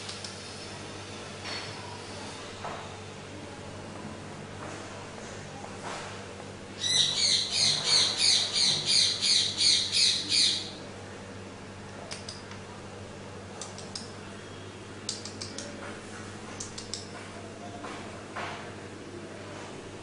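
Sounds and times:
bird chirping rapidly: 6.8s - 10.7s.

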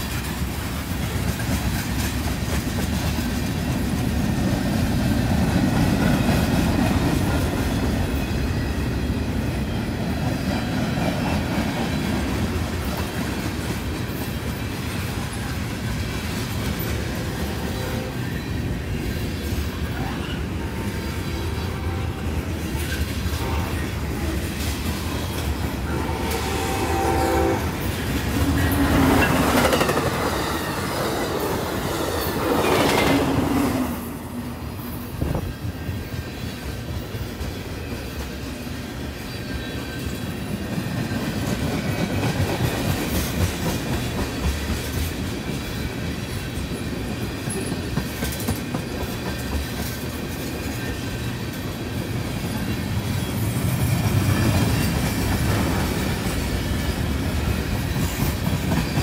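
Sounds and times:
train wheels rumbling on rail: 0.0s - 59.0s
locomotive horn: 17.2s - 18.3s, 21.4s - 22.6s, 23.3s - 24.2s, 25.7s - 29.2s.

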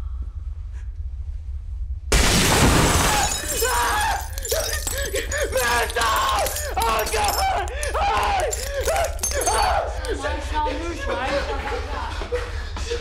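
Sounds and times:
glass shattering: 2.2s - 10.1s.

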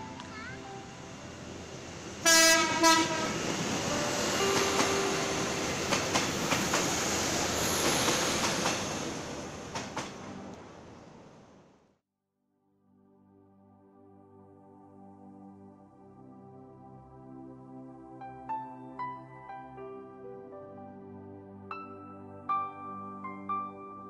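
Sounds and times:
train horn blasts: 2.2s - 3.6s
train wheels clattering over rail joints: 5.7s - 10.3s.

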